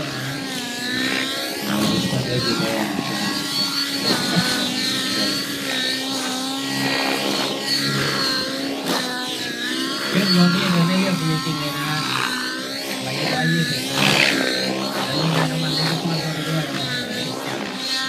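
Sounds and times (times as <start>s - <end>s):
model helicopter engine and rotors: 0.0s - 18.0s.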